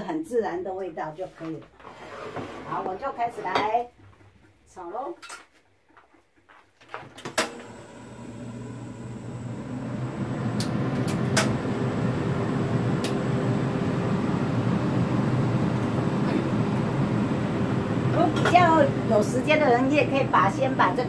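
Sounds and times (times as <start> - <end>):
gas burner rushing hum: 7.3 - 21.0.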